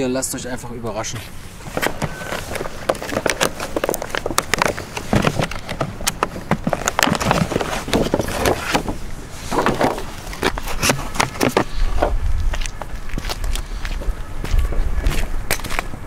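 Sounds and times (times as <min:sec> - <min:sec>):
plastic box being handled: 0:01.6 - 0:12.8.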